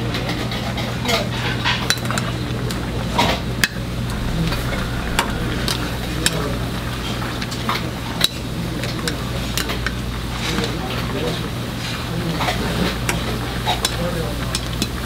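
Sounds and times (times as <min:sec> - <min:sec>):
steady low hum: 0:03.9 - 0:07.6.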